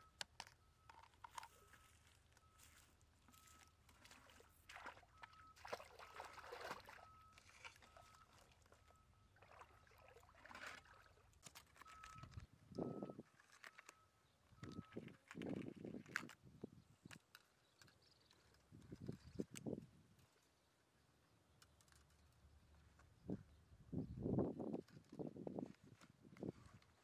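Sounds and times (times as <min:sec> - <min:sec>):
water sloshing and splashing: 0:00.9 - 0:13.9.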